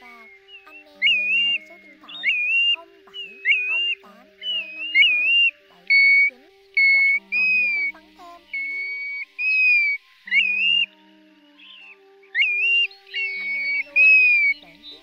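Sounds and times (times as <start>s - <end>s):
faint background music: 0.0s - 15.0s
plovers whistling calls: 0.0s - 15.0s.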